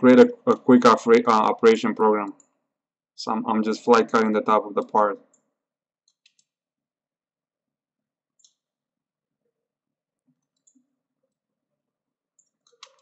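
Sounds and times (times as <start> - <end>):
computer mouse clicks: 5.2 - 6.6, 8.3 - 8.7, 10.3 - 10.9, 12.4 - 13.0.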